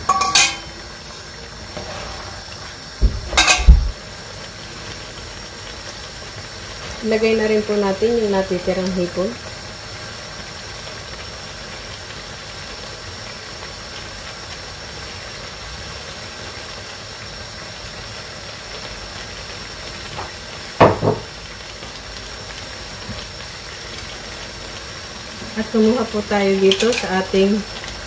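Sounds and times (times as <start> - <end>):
paella simmering in a pan: 0.0 - 28.0
loud knock: 3.0 - 3.9, 20.8 - 21.3.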